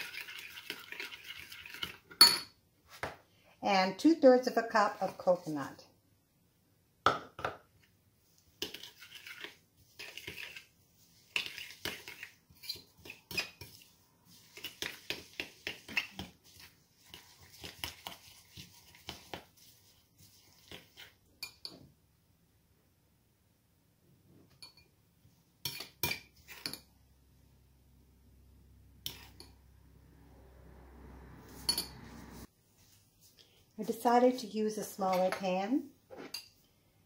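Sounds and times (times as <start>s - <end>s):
metal spoon stirring in a bowl: 0.0s - 2.4s, 8.4s - 21.8s, 25.6s - 26.9s, 29.0s - 29.6s, 35.0s - 35.6s, 36.2s - 36.6s.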